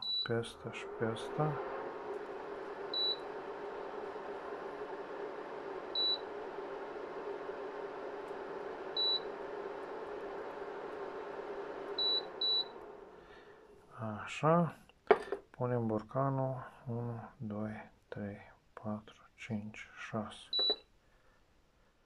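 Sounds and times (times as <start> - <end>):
fan-like whir: 0.0 - 13.8
touch control beeps: 2.9 - 3.2, 9.0 - 9.3, 12.0 - 12.7, 20.6 - 20.8.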